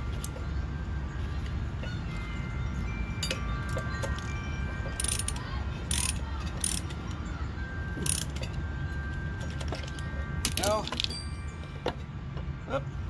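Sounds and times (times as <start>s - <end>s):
metal parts clinking: 3.1s - 7.2s, 8.0s - 12.0s.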